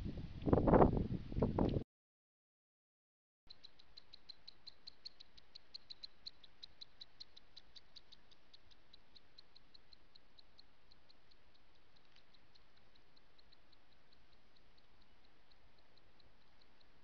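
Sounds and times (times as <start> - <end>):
high-pitched insect chirps: 3.5 - 17.0.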